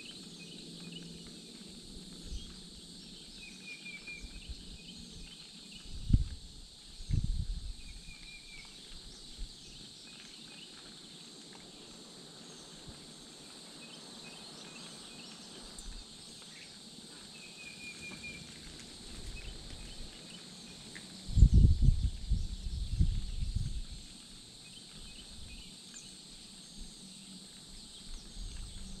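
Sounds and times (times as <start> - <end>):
insect chorus: 0.0 - 29.0.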